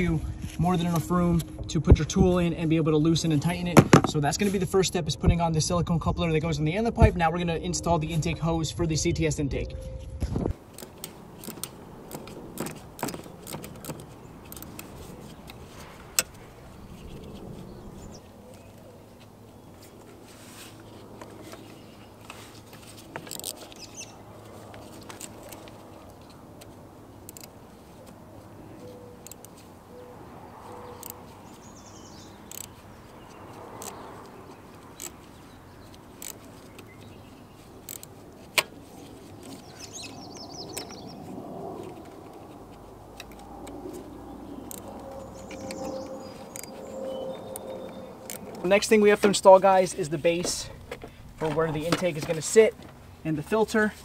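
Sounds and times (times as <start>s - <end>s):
birds chirping faintly: 23.3s - 38.4s, 39.0s - 42.1s, 43.2s - 52.7s.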